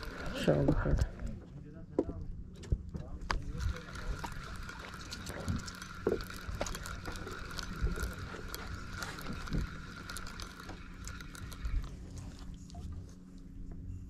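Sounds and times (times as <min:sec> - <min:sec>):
fishing reel gears clicking: 0:00.0 - 0:01.4, 0:03.3 - 0:12.9
steady low hum: 0:00.0 - 0:14.0
thin steady whine: 0:00.0 - 0:14.0.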